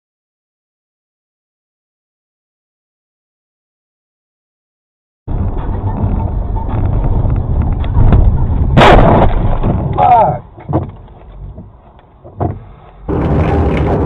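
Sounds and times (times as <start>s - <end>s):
road noise: 5.3s - 14.0s
loud car crash impact: 8.8s - 10.0s
small knocks: 10.6s - 12.7s.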